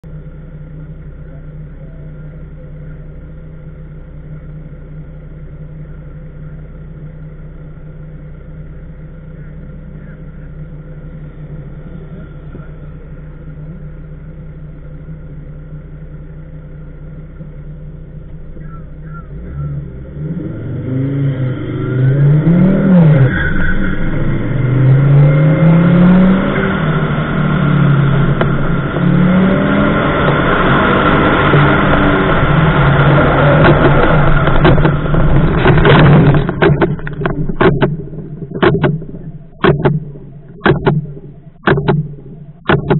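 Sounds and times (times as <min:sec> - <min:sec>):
car engine idling: 0:00.0 - 0:42.9
car engine revving and accelerating: 0:18.3 - 0:42.9.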